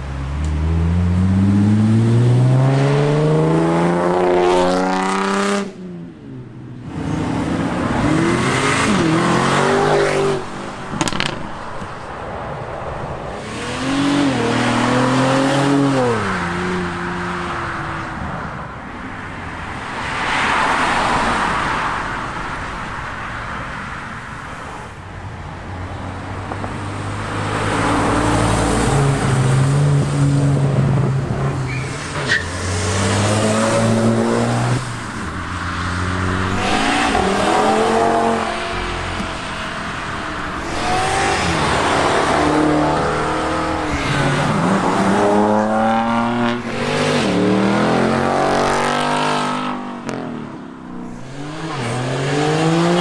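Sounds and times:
cars accelerating past: 0:00.2 - 0:05.8, 0:26.2 - 0:53.0.

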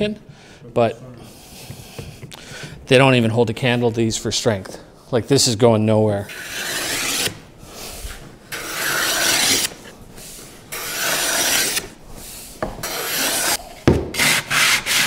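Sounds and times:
wooden block plane shaving wood: 0:06.3 - 0:07.4, 0:08.5 - 0:09.9, 0:10.7 - 0:12.0, 0:12.8 - 0:13.6, 0:14.2 - 0:15.0.

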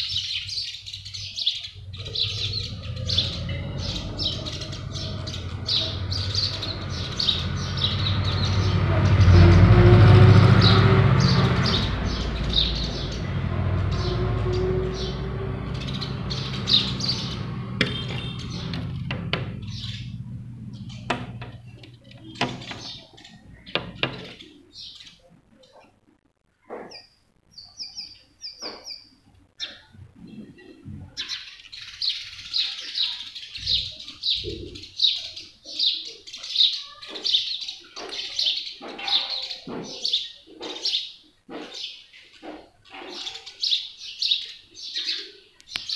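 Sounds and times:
sparrows chirping: 0:00.0 - 0:26.0, 0:26.8 - 0:45.9
steady low hum: 0:01.7 - 0:24.2.

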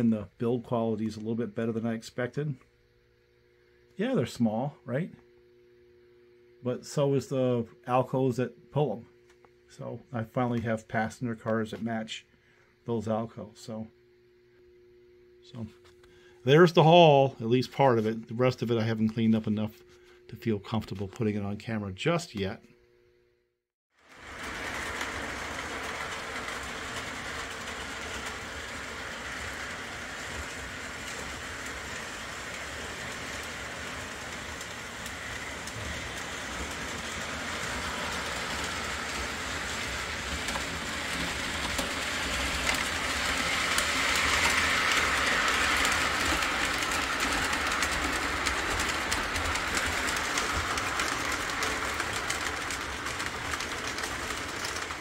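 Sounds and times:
model train wheels rumbling on rails: 0:24.0 - 0:55.0.

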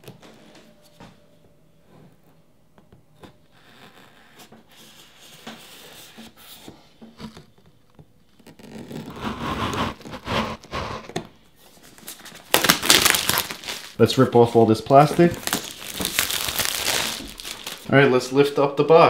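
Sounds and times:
plastic film crinkling and tearing: 0:11.7 - 0:17.9
knife slitting plastic wrap: 0:12.0 - 0:14.0, 0:15.1 - 0:17.9.

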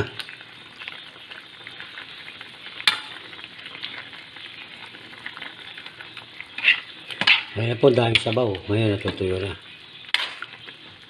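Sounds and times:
food sizzling in a wok: 0:00.0 - 0:11.0
metal spoon scraping a pan: 0:06.5 - 0:08.4, 0:10.1 - 0:10.6.

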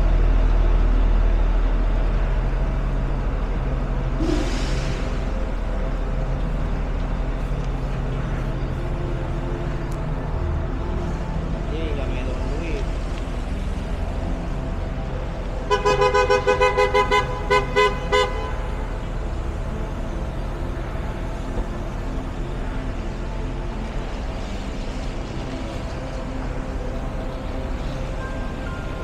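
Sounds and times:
city street traffic: 0:00.0 - 0:29.0
car horn honking: 0:15.7 - 0:18.9.

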